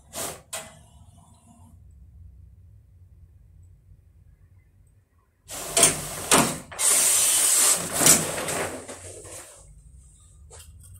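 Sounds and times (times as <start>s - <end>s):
printer mechanical rasp: 5.5s - 9.6s
paper rustle: 6.0s - 9.7s.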